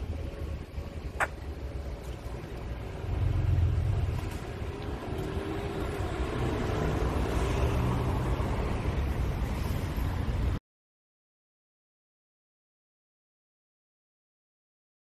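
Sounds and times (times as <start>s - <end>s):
cars driving past: 0.0s - 10.6s.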